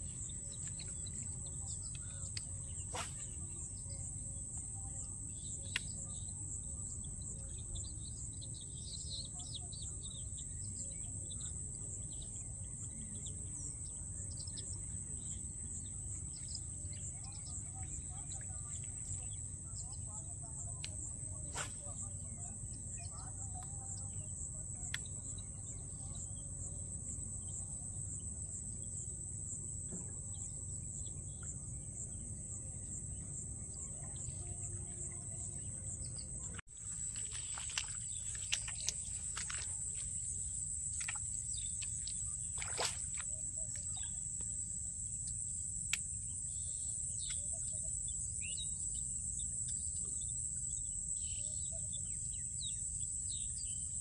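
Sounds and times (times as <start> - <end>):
high-pitched insect trill: 36.8 - 54.0.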